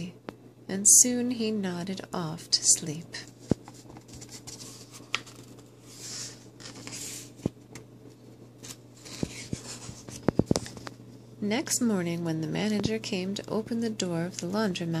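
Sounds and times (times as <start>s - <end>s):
book pages rustling: 3.2s - 11.0s.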